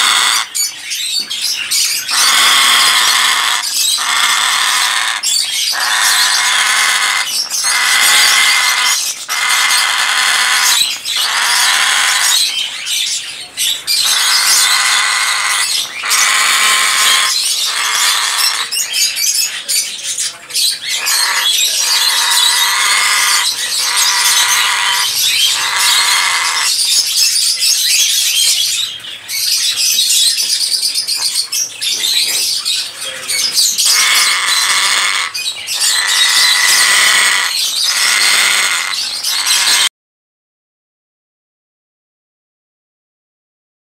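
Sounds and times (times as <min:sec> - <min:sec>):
parrot squawking: 0:00.0 - 0:13.0, 0:13.7 - 0:19.4, 0:20.6 - 0:28.5, 0:32.8 - 0:39.9.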